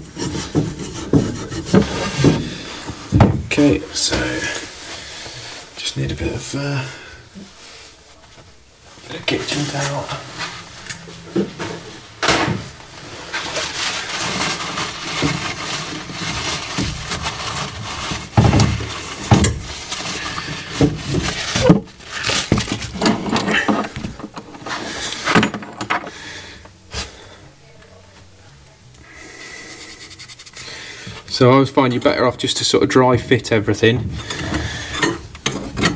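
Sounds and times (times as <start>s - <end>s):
knocks and bumps: 0.0s - 4.3s, 18.2s - 19.8s
paper towel rustling and rubbing: 7.5s - 23.7s, 29.4s - 31.5s.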